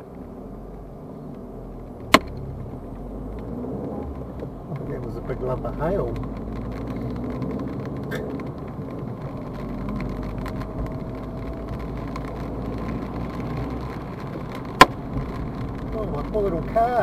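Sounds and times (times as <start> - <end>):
car and tyres rumbling: 0.0 - 17.0
hail and rain ticking on roof: 4.7 - 17.0.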